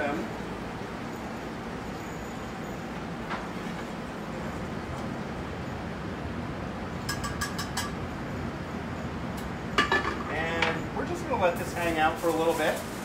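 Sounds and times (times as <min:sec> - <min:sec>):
rushing kitchen background: 0:00.0 - 0:13.0
kitchen utensils clinking: 0:09.8 - 0:10.8.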